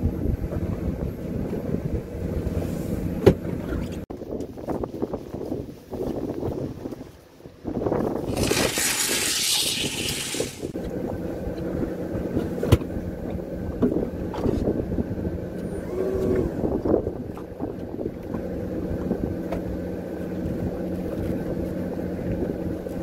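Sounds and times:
boat machinery humming: 10.7s - 23.0s.

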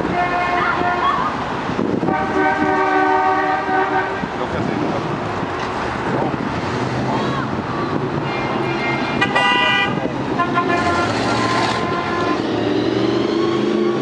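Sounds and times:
vehicle horn: 0.0s - 1.1s, 2.1s - 4.3s, 9.2s - 12.6s
cars passing slowly: 0.0s - 14.0s.

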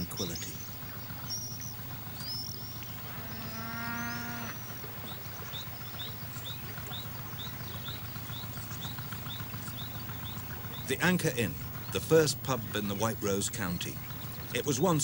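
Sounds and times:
cow mooing: 3.0s - 4.6s.

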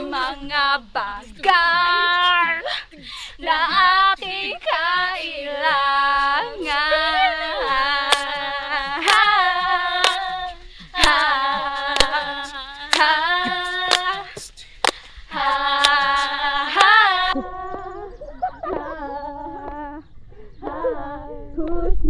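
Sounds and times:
girls singing held notes: 0.0s - 22.0s
sharp hand clap: 8.1s - 8.3s, 9.0s - 9.4s, 10.0s - 10.3s, 11.0s - 11.3s, 11.9s - 15.1s, 15.8s - 16.2s.

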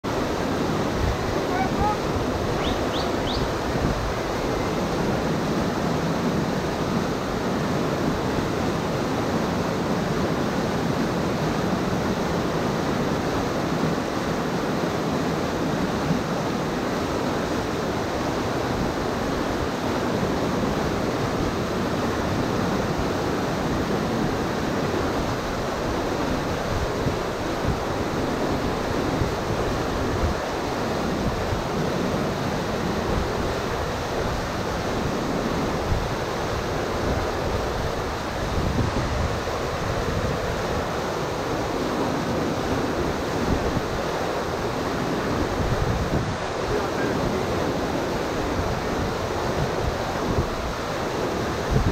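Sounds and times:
whitewater rushing over rocks: 0.1s - 51.9s
faint high chirps: 2.6s - 3.5s.

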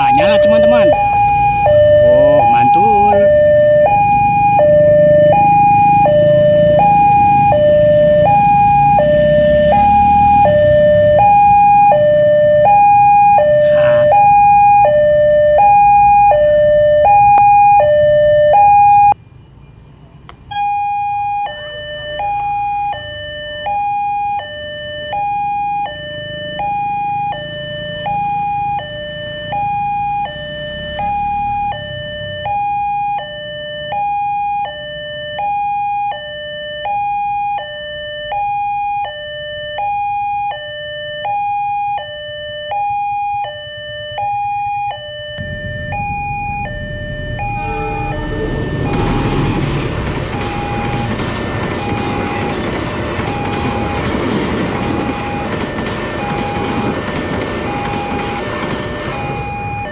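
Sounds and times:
two-tone crossing alarm: 0.0s - 19.2s, 20.4s - 59.9s
low rumble: 45.4s - 50.9s.

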